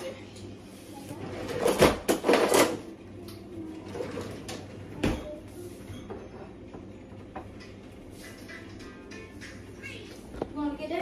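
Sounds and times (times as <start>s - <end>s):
utensils and cabinets clattering: 1.2s - 2.9s.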